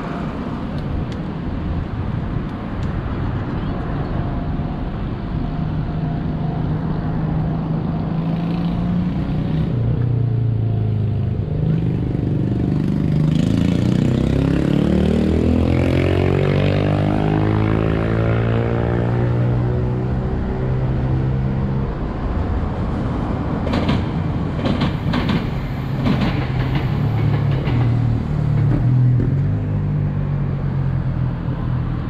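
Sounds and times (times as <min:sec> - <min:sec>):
road traffic rumble: 0:00.0 - 0:32.0
vehicle accelerating past: 0:07.7 - 0:22.1.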